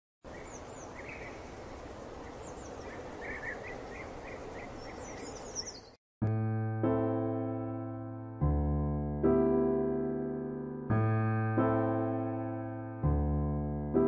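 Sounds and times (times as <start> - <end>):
outdoor ambience hiss: 0.2 - 5.9
birds chirping: 0.2 - 6.0
electric piano chord: 6.2 - 14.0.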